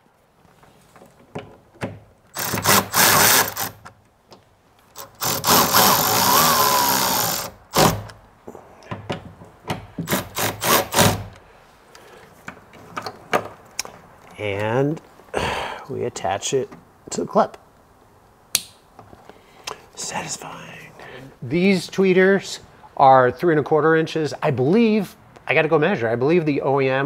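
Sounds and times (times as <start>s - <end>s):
cordless power driver running: 5.1s - 8.0s.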